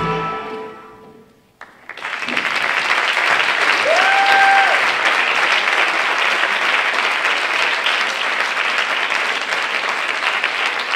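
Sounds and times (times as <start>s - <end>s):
audience applauding: 1.6s - 10.9s
person cheering: 3.8s - 4.9s.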